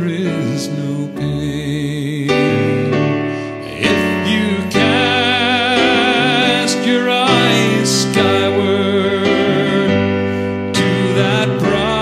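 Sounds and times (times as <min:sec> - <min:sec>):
man singing with vibrato: 0:00.0 - 0:12.0
piano chords: 0:00.0 - 0:12.0.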